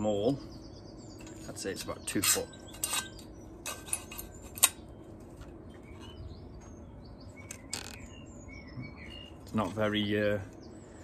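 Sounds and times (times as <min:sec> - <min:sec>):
small birds chirping: 0:00.0 - 0:11.0
rattling scrape: 0:02.2 - 0:04.8.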